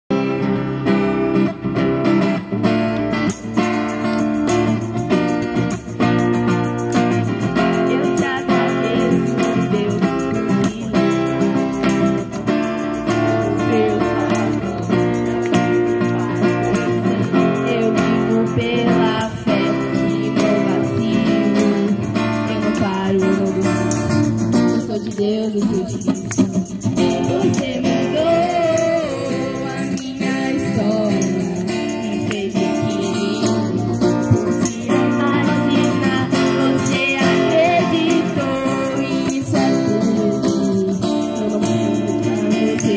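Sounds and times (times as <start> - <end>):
strummed acoustic guitar: 0.1 - 42.9
tambourine shaking: 3.1 - 42.9
woman singing through loudspeaker: 7.4 - 11.9, 13.1 - 15.2, 16.0 - 24.2, 24.8 - 26.2, 27.0 - 42.9.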